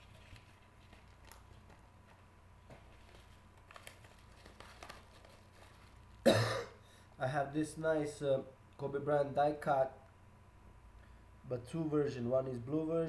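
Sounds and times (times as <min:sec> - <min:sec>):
trading cards clicking and rustling: 0:00.0 - 0:06.2.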